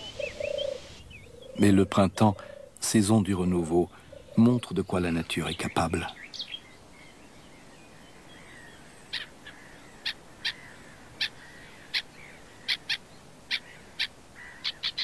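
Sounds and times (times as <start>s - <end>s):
faint background birdsong: 0.0s - 15.0s
short sharp bird calls: 8.1s - 15.0s.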